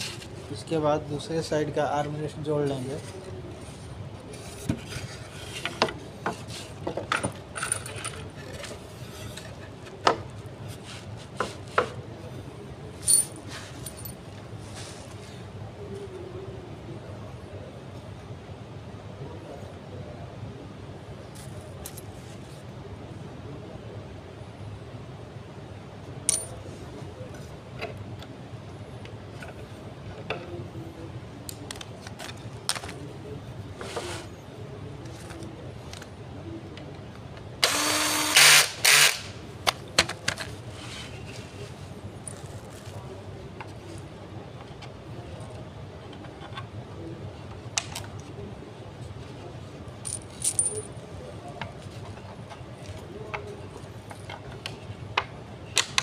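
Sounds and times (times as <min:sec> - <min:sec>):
low background hum: 0:00.0 - 0:56.0
metal bolts clinking: 0:26.3 - 0:26.5.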